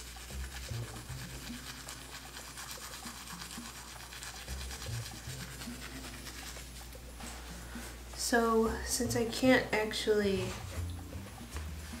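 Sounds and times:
toothbrush scrubbing teeth: 0.0s - 7.6s.

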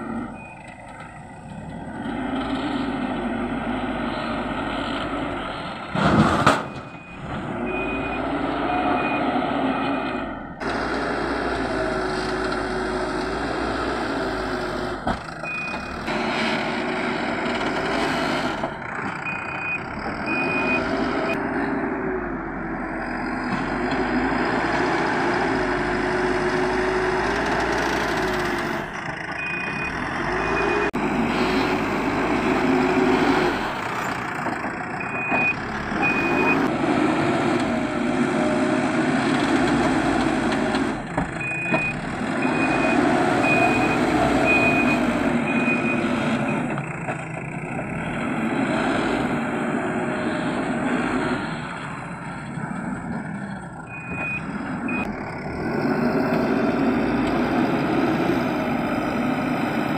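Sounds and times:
diesel engine revving: 0.0s - 59.9s
reversing alarm beeps: 6.6s - 10.3s, 29.4s - 31.3s, 35.0s - 36.7s, 41.4s - 46.7s, 53.9s - 55.1s.

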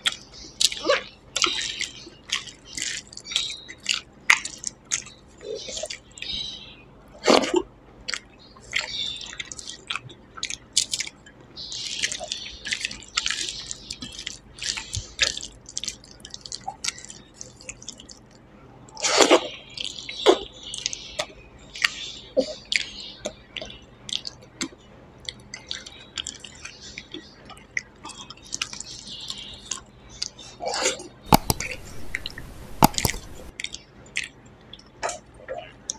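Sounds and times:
wet chewing and lip-smacking: 1.4s - 6.2s, 8.1s - 11.2s, 11.9s - 19.0s, 22.7s - 35.9s.

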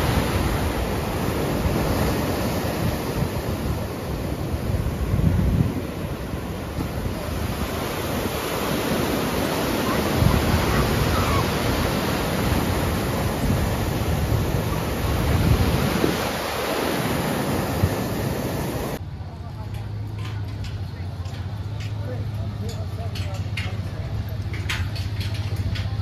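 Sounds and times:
ocean surf rushing: 0.0s - 19.0s
wind buffeting microphone: 0.0s - 19.0s.

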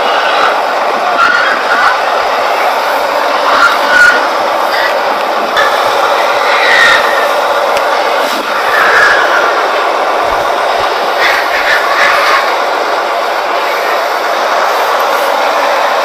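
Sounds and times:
pigs screaming: 0.0s - 2.3s, 2.9s - 5.0s, 5.6s - 7.5s, 8.3s - 12.8s
shrill pig squeals: 1.2s - 2.0s, 3.5s - 5.0s, 6.4s - 7.3s, 8.6s - 9.6s.

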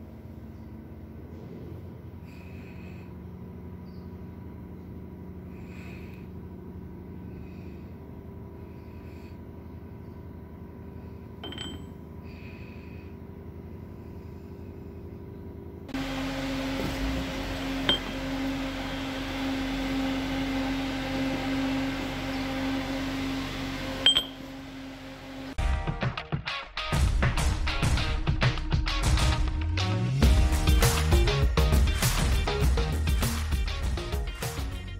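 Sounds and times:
workshop machinery humming: 0.0s - 25.6s
music: 25.6s - 34.9s.

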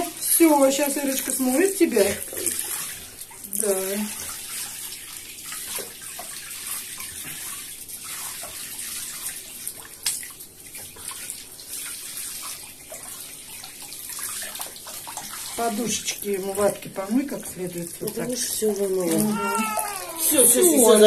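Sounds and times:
shower water spraying: 15.2s - 21.0s.

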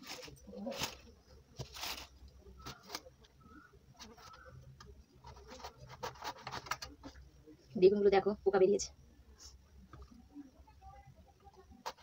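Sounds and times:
vegetables rustling and being cut: 0.0s - 3.1s.

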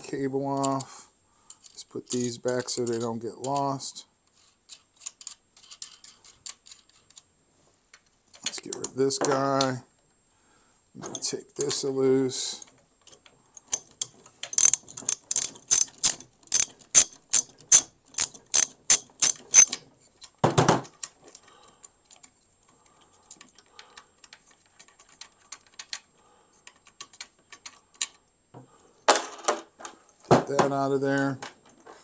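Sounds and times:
socket ratchet clicking: 13.7s - 19.8s.

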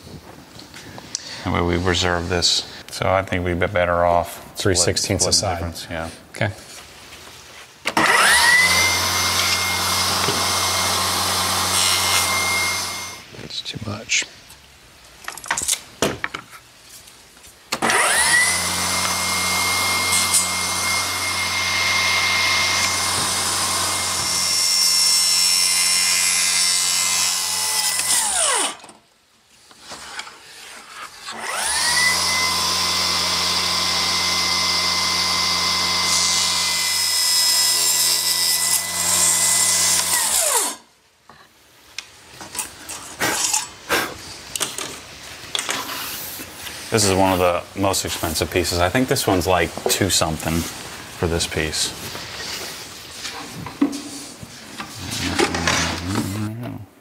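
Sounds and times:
table saw cutting wood: 7.9s - 13.2s, 17.7s - 28.9s, 31.1s - 40.8s.

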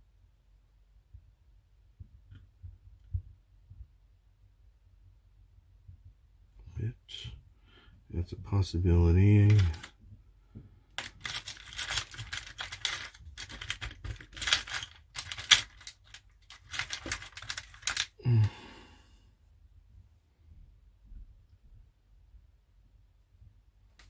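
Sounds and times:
small clicks and rustling: 9.3s - 10.0s, 10.9s - 18.2s
person humming: 18.2s - 19.0s.

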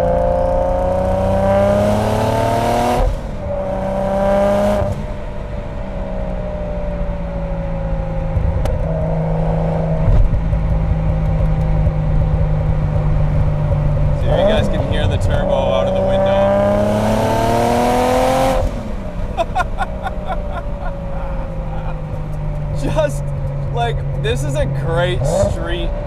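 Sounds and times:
car engine revving hard: 0.0s - 5.2s, 14.1s - 23.1s, 25.0s - 26.0s.

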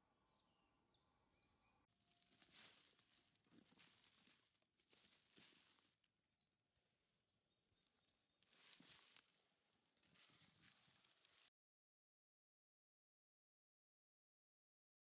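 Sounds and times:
footsteps crunching through dry twigs: 2.0s - 6.1s, 8.4s - 11.5s.

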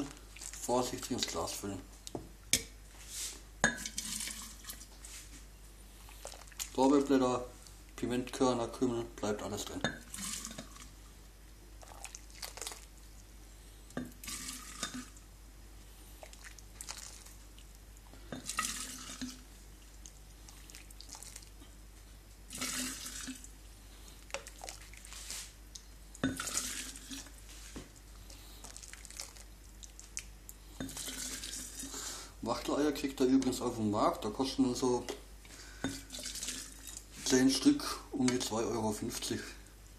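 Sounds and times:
liquid splashing into jar: 9.9s - 10.9s, 26.2s - 27.4s, 35.8s - 37.0s.

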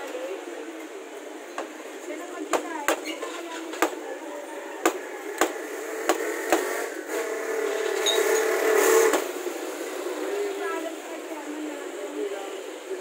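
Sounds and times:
passing vehicle engine hum: 5.0s - 13.0s.

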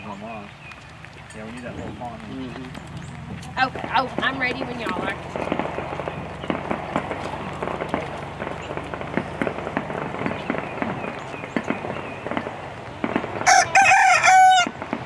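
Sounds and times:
small crackling clicks: 0.4s - 3.6s
rooster crowing: 13.4s - 14.8s.

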